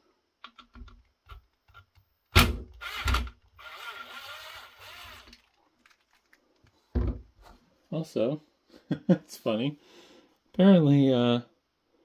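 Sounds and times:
electric screwdriver whirring: 2.8s - 5.5s.

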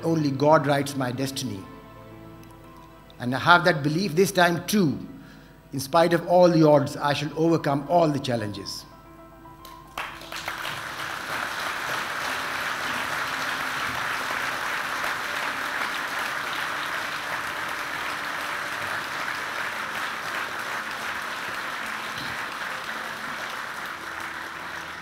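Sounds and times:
large audience applauding: 9.6s - 25.0s.

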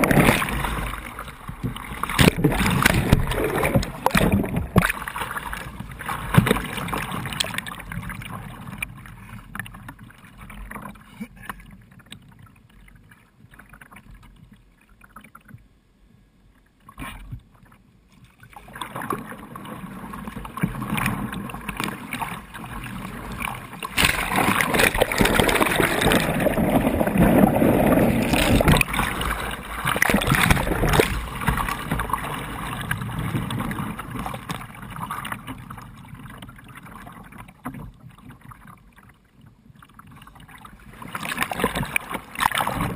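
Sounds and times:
turbulent water rushing: 0.0s - 7.5s, 23.2s - 33.0s
paddle blades striking water: 0.0s - 7.7s, 20.4s - 32.8s
water splashing and churning: 0.0s - 15.6s, 16.8s - 42.9s.

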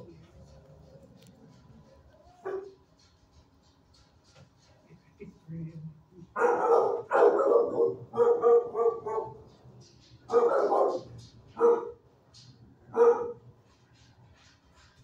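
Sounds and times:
dog barking: 2.4s - 2.8s, 6.4s - 9.5s, 10.3s - 12.0s, 12.9s - 13.4s.

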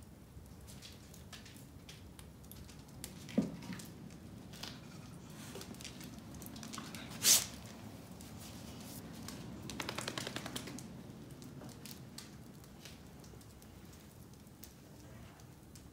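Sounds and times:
wood fire crackling: 0.0s - 15.9s
fire pops: 0.4s - 15.9s
short loud hiss: 7.2s - 7.5s.

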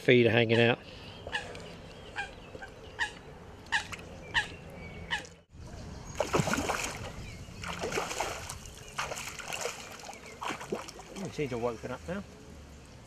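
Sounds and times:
fish splashing at water surface: 6.2s - 11.3s.

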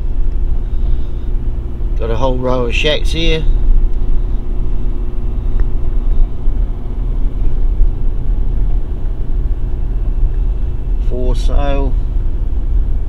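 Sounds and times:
car engine and tyres rumbling: 0.0s - 13.0s.

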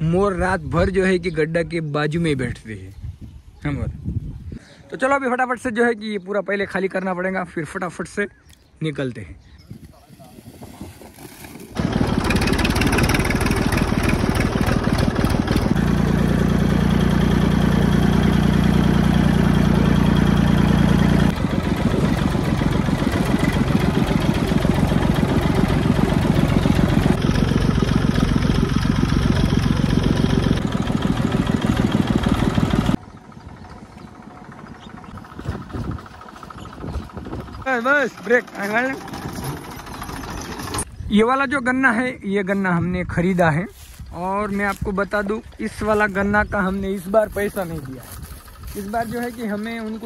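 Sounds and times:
tractor diesel engine chugging: 11.8s - 40.9s, 45.2s - 50.0s.

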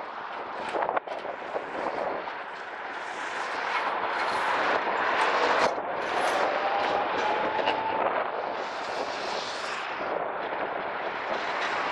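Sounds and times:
tram wheels rolling on rails: 0.0s - 11.9s.

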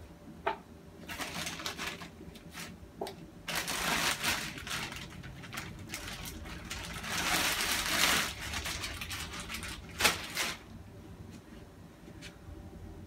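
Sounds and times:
plastic bag crinkling: 1.0s - 2.8s, 3.4s - 10.8s.

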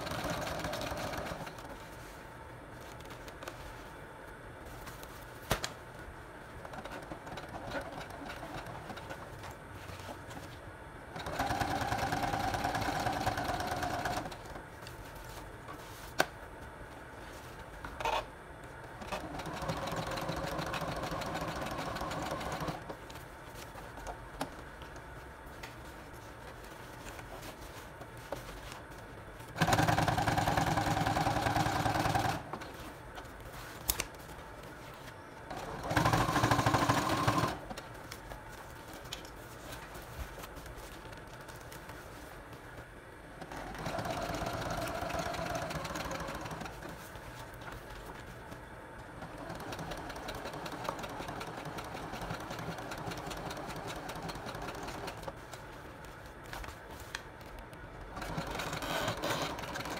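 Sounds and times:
sewing machine stitching: 0.0s - 1.7s, 11.2s - 14.4s, 19.0s - 22.9s, 29.6s - 32.6s, 35.5s - 37.7s, 43.4s - 46.9s, 49.2s - 55.3s, 58.1s - 59.9s.

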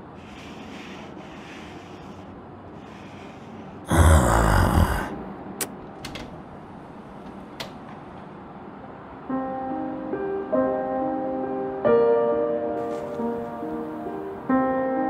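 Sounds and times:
slow piano music: 9.1s - 15.0s.

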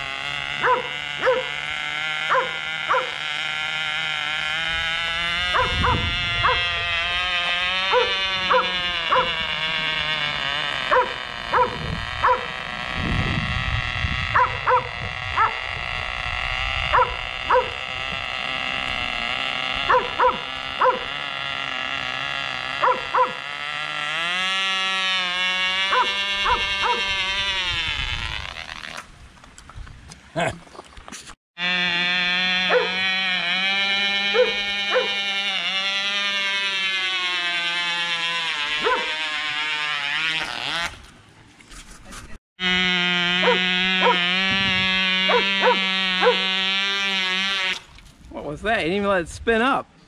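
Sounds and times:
model helicopter engine buzzing: 0.0s - 29.1s, 31.6s - 41.2s, 42.6s - 48.1s
dog barking: 0.6s - 1.5s, 2.3s - 3.1s, 5.6s - 6.6s, 7.9s - 9.3s, 10.9s - 12.5s, 14.4s - 15.6s, 16.9s - 17.8s, 19.9s - 21.0s, 22.8s - 23.4s, 25.9s - 27.0s, 32.7s - 33.0s, 34.4s - 35.2s, 38.8s - 39.1s, 45.3s - 46.4s.

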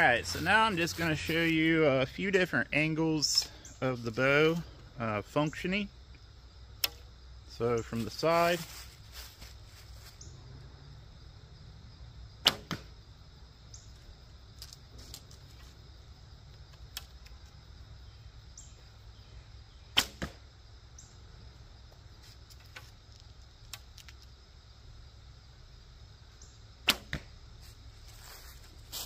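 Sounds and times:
arrow striking target: 6.8s - 7.1s, 12.4s - 13.0s, 19.9s - 20.5s, 26.8s - 27.4s
bow string snapping: 6.8s - 7.1s, 12.5s - 12.9s, 20.0s - 20.4s, 26.9s - 27.3s.

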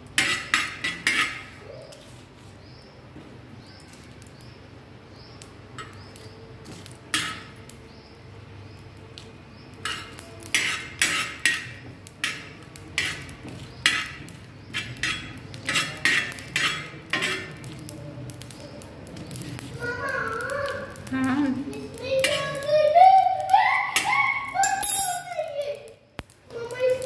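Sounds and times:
spoon scraping on iron pan: 0.2s - 2.2s, 5.8s - 7.6s, 9.8s - 17.8s.

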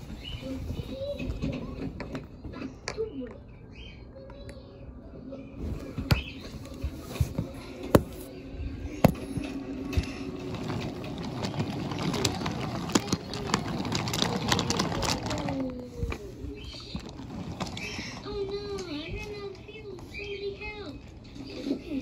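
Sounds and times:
wooden toy cars clicking and knocking: 9.0s - 19.3s
toy train wheels rolling on track: 9.8s - 19.4s.

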